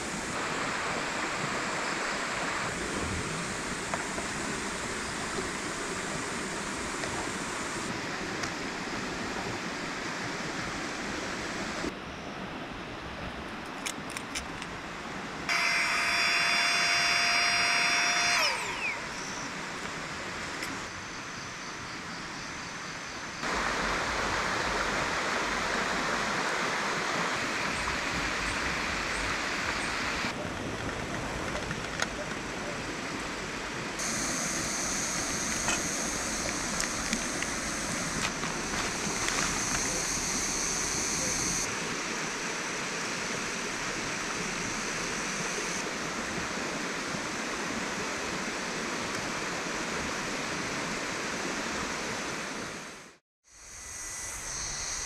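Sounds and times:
rushing river water: 0:00.0 - 0:15.5, 0:23.4 - 0:53.2
high-pitched motor winding down: 0:15.5 - 0:19.6, 0:34.0 - 0:41.7, 0:53.5 - 0:55.0.

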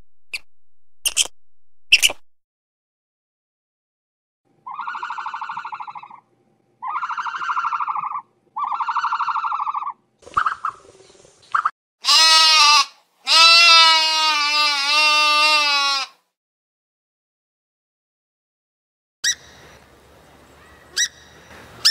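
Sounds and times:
buzzy trembling animal calls: 0:04.6 - 0:10.9
loud wavering bleats: 0:12.0 - 0:16.2.

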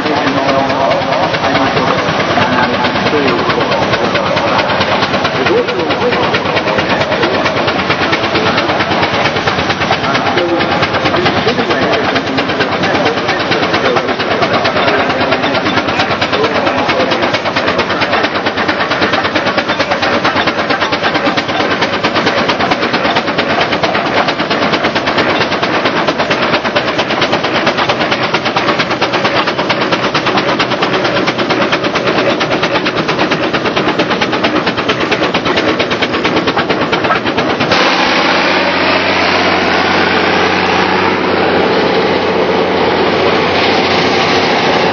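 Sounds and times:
steam traction engine running: 0:00.0 - 0:44.9
rising whine: 0:37.2 - 0:44.9.

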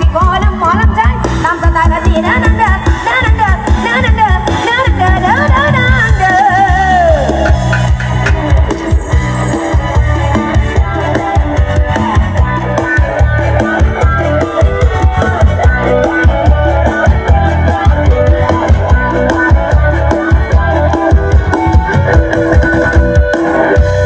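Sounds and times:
loud music with guitar and bass: 0:00.0 - 0:24.0.

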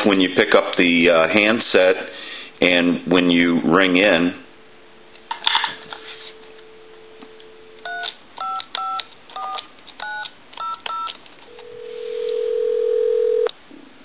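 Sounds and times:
telephone dial tone: 0:07.8 - 0:13.5
touch-tone keypad beeps: 0:07.9 - 0:11.2.

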